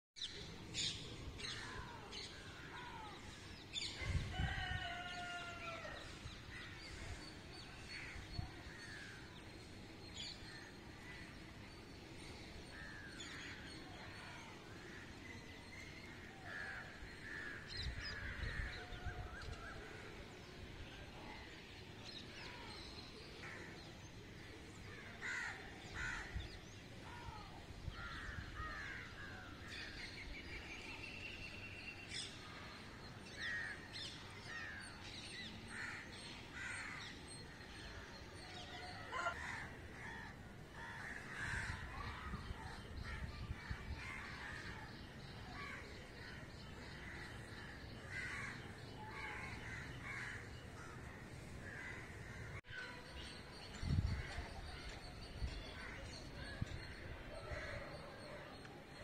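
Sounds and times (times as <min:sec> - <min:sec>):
steady outdoor hush: 0:00.2 - 0:59.0
crows cawing: 0:25.2 - 0:26.3.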